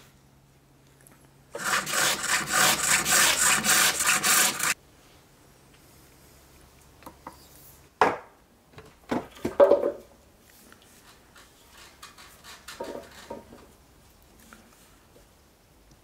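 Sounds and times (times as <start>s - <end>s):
hook tool scraping wood: 1.6s - 4.8s.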